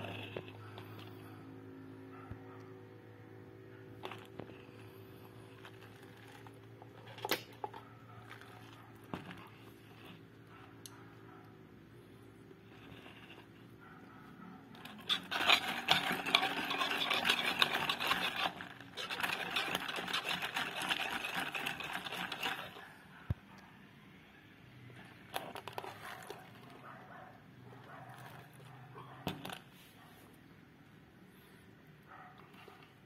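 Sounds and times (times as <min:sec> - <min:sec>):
ice rattling in a plastic cup: 0:14.8 - 0:22.9, 0:25.2 - 0:26.8.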